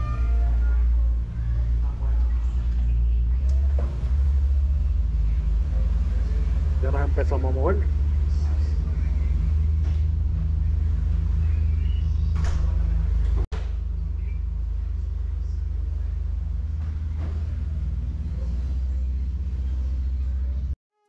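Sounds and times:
ferry engines droning: 0.0 - 20.8.

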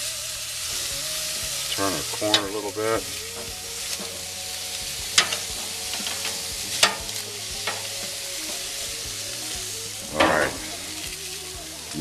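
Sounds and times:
food sizzling on a grill: 0.0 - 12.0
metal tongs clacking: 3.2 - 11.3.

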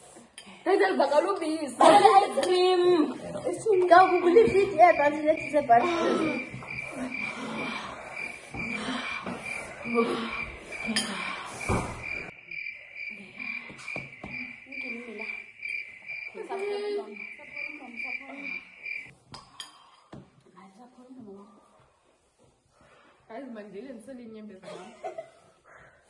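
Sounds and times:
cricket chirping: 3.2 - 19.1.

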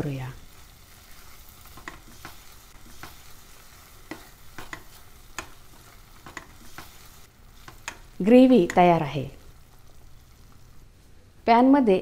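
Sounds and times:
gravy sizzling: 0.0 - 11.5
spatula scraping a pan: 0.5 - 8.0.

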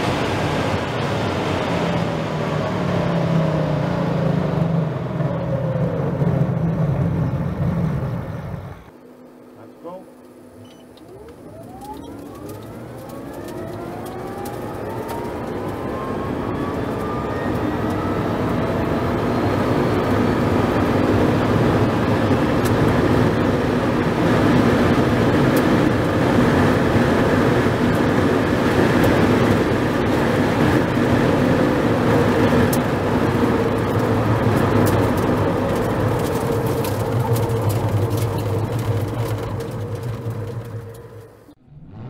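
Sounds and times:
wind and tyre noise: 0.0 - 42.0
electric motor whine: 10.2 - 20.7.

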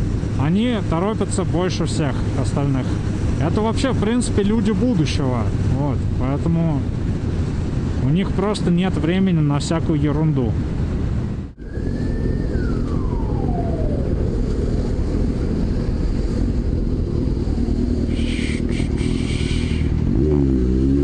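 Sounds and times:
road noise: 0.0 - 21.0
high tone gliding down: 11.6 - 15.6.

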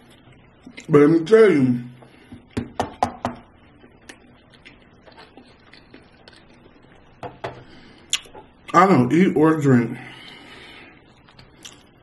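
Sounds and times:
man chewing food: 3.6 - 8.7, 11.0 - 12.0
sharp wet mouth smacks: 8.1 - 8.4.

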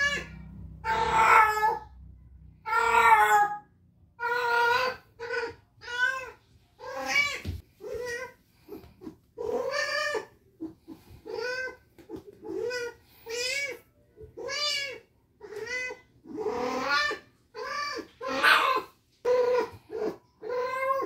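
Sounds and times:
cat yowling: 0.0 - 1.9, 2.6 - 8.3, 9.4 - 10.3, 14.4 - 21.0.

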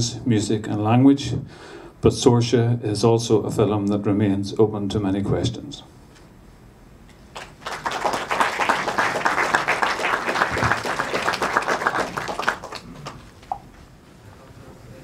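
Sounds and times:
audience applauding: 7.3 - 13.5.

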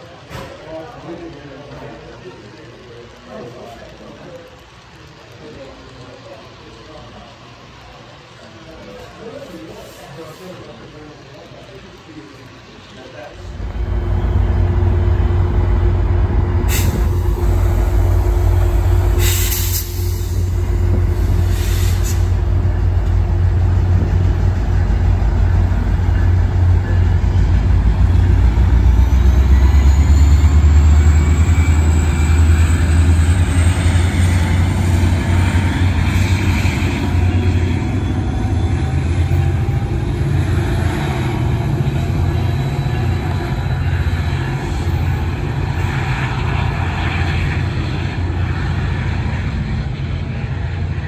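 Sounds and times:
locomotive engine drone: 0.0 - 51.0
thin rising whine: 13.3 - 50.7
air hiss bursts: 16.7 - 22.4.

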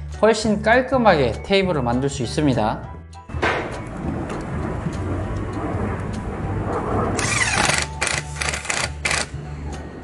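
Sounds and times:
cordless drill driving screws: 7.2 - 9.3.

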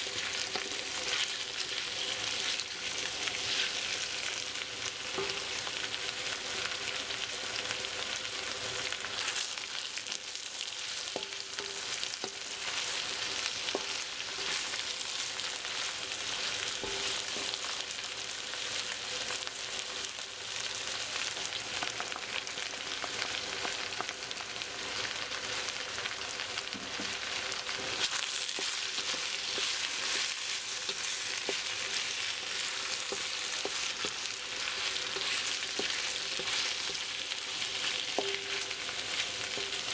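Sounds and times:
food sizzling in a wok: 0.0 - 39.9
wooden spatula tapping and scraping metal: 0.3 - 3.8, 5.1 - 5.9, 10.8 - 15.8, 16.4 - 17.8, 26.7 - 27.2, 27.8 - 39.9.

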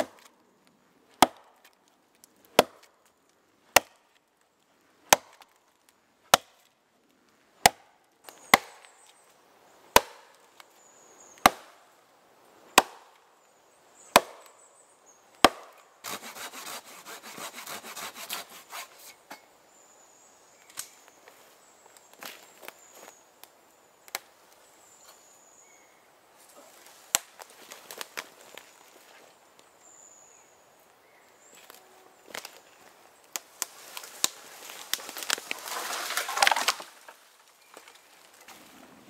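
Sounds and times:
axe chopping into tree: 1.1 - 1.7, 2.5 - 2.9, 3.7 - 4.0, 5.0 - 5.5, 6.3 - 6.7, 7.6 - 9.0, 9.9 - 10.3, 11.4 - 11.8, 12.7 - 13.2, 14.1 - 14.5, 15.4 - 16.8, 35.0 - 37.1
tree trunk cracking and splintering: 33.3 - 38.7.

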